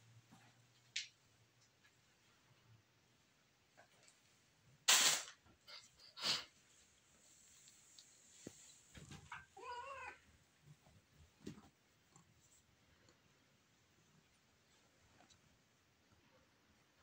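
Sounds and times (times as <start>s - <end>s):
short sharp noisy bursts: 4.9s - 5.3s
cat meowing: 9.3s - 10.2s.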